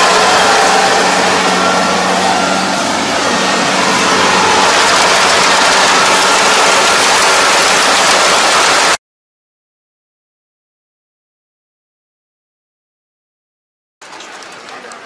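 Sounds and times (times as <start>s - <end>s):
combine harvester running: 0.0s - 9.0s
steady low hum: 0.0s - 9.0s.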